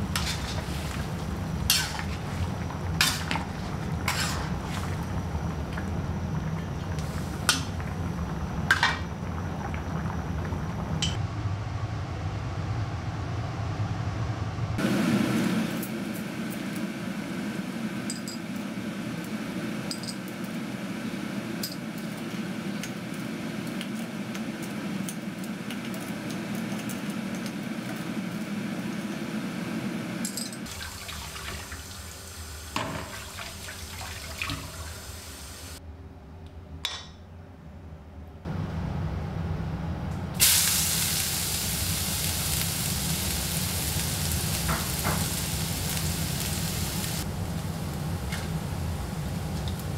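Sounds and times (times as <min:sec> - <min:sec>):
water boiling in saucepan: 0:00.0 - 0:11.2, 0:30.3 - 0:35.8, 0:40.4 - 0:49.9.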